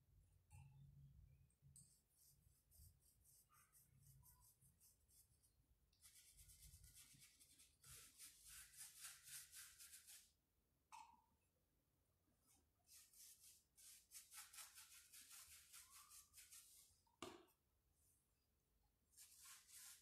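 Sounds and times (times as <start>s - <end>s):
paintbrush scratching on rough wood: 6.0s - 10.3s, 12.9s - 16.9s, 19.2s - 20.0s.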